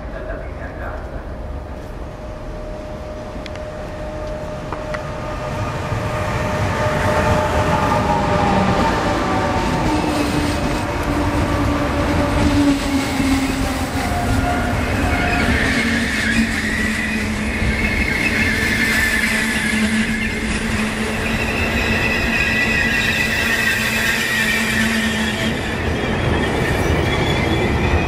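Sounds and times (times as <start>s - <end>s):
train wheels rumbling on rails: 0.0s - 28.0s
high steady squeal: 12.5s - 28.0s.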